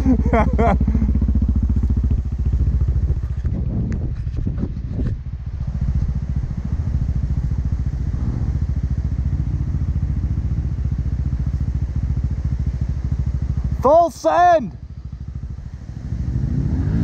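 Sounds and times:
atv engine running: 0.0s - 17.0s
light clatter: 2.0s - 5.3s.

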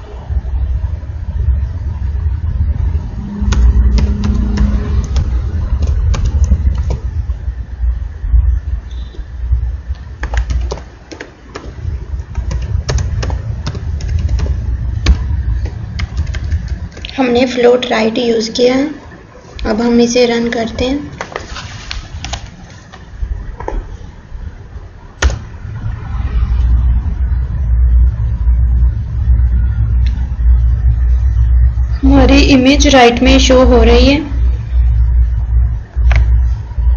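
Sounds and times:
low rumble: 0.0s - 10.6s, 11.6s - 18.4s, 23.1s - 36.9s
keyboard keys clicking: 3.5s - 7.1s, 9.9s - 17.1s.

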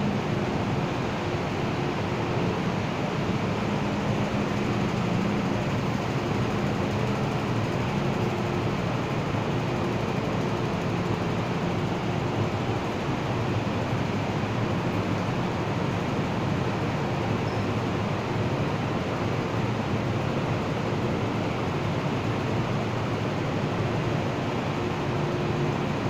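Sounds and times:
train equipment hum and hiss: 0.0s - 26.0s.

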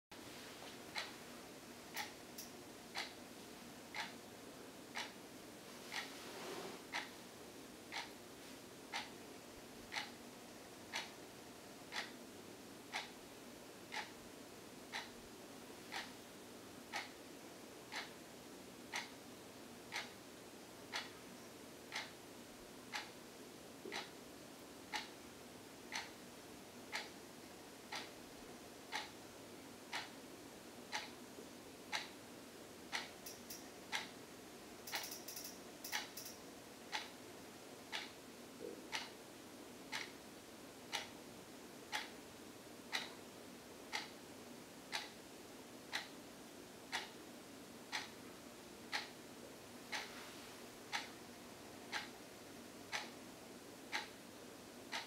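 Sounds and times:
wall clock ticking: 0.9s - 1.2s, 1.9s - 3.3s, 3.9s - 4.2s, 4.9s - 5.2s, 6.9s - 7.2s, 7.9s - 8.2s, 8.9s - 9.2s, 9.9s - 10.2s, 10.9s - 11.2s, 11.8s - 12.2s, 12.9s - 13.2s, 13.9s - 14.2s, 14.8s - 15.1s, 15.9s - 16.2s, 16.8s - 17.2s, 17.9s - 18.2s, 18.8s - 19.2s, 19.9s - 20.2s, 20.8s - 21.2s, 21.9s - 22.2s, 22.8s - 23.2s, 23.8s - 24.2s, 24.9s - 25.2s, 25.8s - 26.2s, 26.8s - 27.2s, 27.8s - 28.2s, 28.8s - 30.2s, 30.9s - 31.2s, 31.9s - 32.2s, 32.9s - 34.2s, 34.8s - 37.2s, 37.8s - 38.2s, 38.9s - 39.2s, 39.9s - 41.2s, 41.9s - 42.2s, 42.8s - 43.2s, 43.8s - 44.2s, 44.9s - 45.2s, 45.8s - 46.2s, 46.9s - 47.2s, 47.8s - 48.3s, 48.9s - 49.2s, 49.9s - 50.2s, 50.9s - 51.2s, 51.8s - 52.3s, 52.9s - 53.3s, 53.9s - 54.2s.

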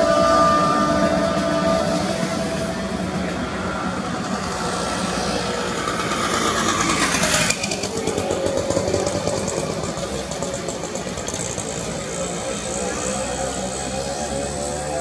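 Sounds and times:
motor traffic: 0.0s - 15.0s.

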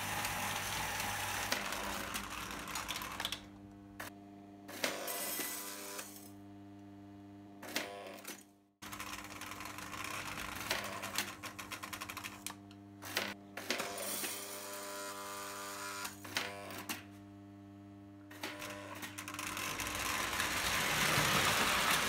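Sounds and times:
toy train electrical hum: 0.0s - 6.9s, 7.6s - 17.1s, 17.7s - 22.0s
toy train whirring with clicks: 18.4s - 22.0s
toy dump car unloading: 19.2s - 22.0s.

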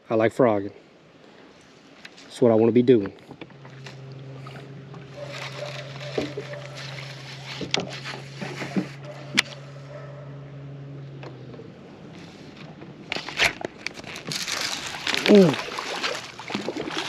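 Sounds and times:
electric motor humming: 3.4s - 13.2s.

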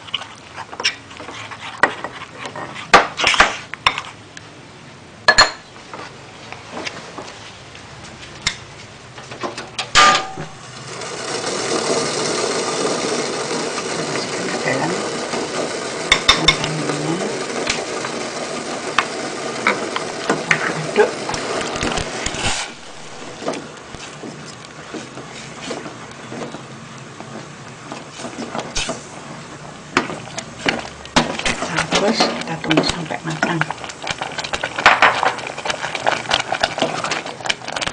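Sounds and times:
rushing noise from cooking pot: 9.9s - 23.5s, 33.7s - 37.9s.

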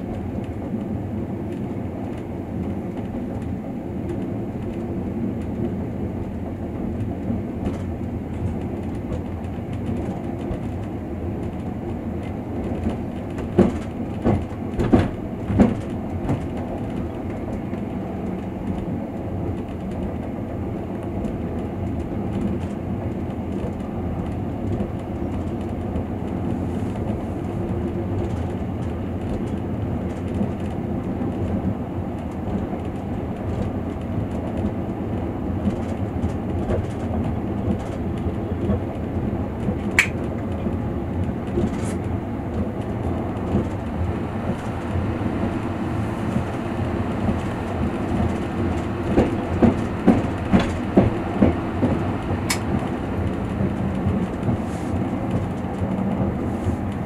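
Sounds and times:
train wheels rumbling on rail: 0.0s - 57.0s
wheel clacks over rail joints: 7.0s - 18.9s, 47.3s - 54.6s.

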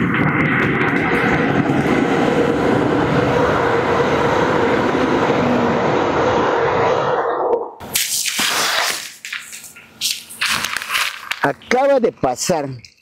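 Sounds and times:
passenger train passing: 0.0s - 7.5s.

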